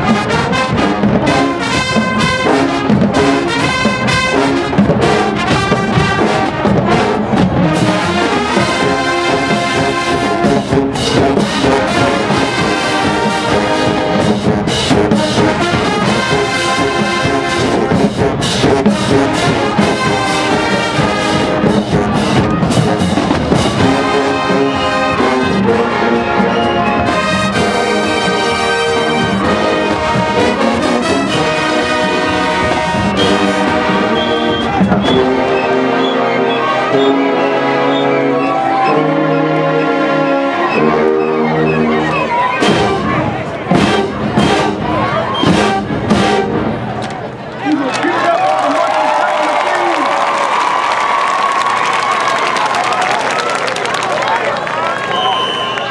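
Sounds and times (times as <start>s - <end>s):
marching band brass: 0.0s - 55.9s.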